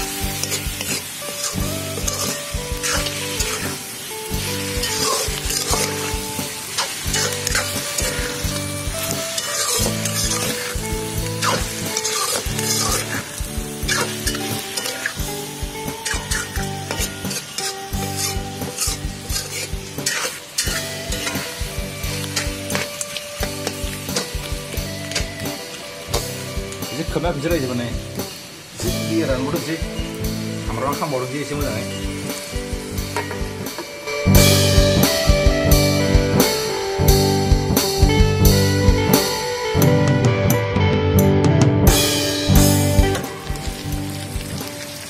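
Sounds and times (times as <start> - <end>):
metal spatula scraping a pan: 0.0 - 25.4
meat sizzling in a pan: 0.0 - 39.7, 41.9 - 45.0
rhythmic background music: 0.0 - 45.0.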